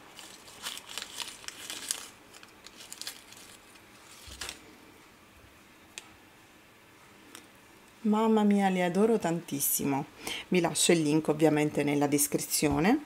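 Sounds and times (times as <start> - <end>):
plastic bag crinkling: 0.0 - 4.8.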